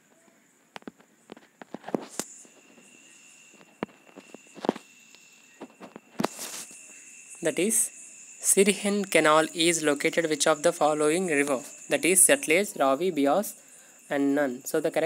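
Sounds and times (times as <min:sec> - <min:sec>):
faint high-pitched tone: 0:01.3 - 0:15.0.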